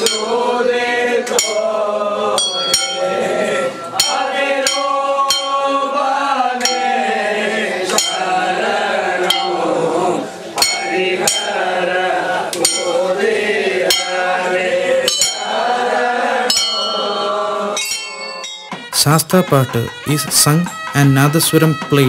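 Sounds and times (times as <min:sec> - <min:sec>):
men chanting together: 0:00.0 - 0:18.1
ringing metal clinks: 0:02.4 - 0:03.2, 0:17.8 - 0:19.0.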